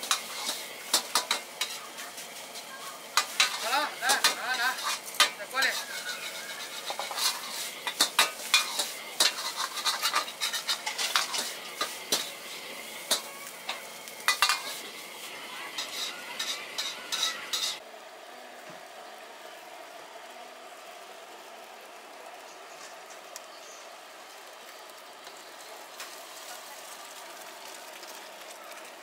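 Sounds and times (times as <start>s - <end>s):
food sizzling: 0.0s - 29.0s
metal ladle clanking on wok: 13.0s - 14.8s, 15.8s - 17.8s.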